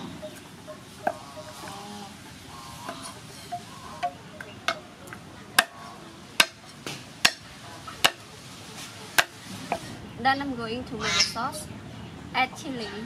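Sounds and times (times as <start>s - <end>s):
cleaver chopping on wooden block: 5.6s - 8.2s, 9.2s - 9.8s.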